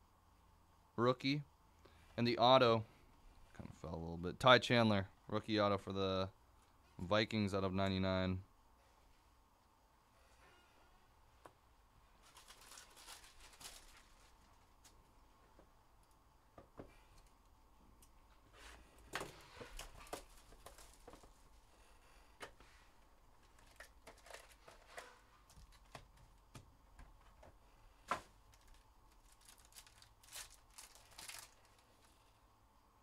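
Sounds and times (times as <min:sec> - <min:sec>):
foil wrappers crinkling and tearing: 0:12.2 - 0:15.0, 0:28.5 - 0:32.2.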